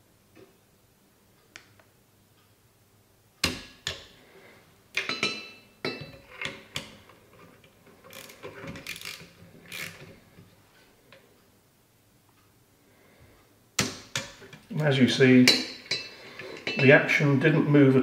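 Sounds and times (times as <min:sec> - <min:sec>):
torque wrench clicking: 0:08.1 - 0:10.1.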